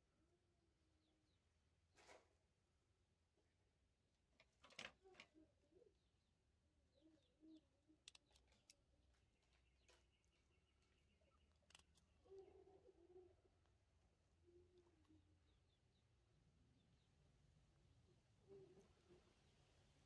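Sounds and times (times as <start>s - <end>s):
faint soft coos: 4.9s - 6.1s, 12.2s - 15.7s, 18.1s - 19.4s.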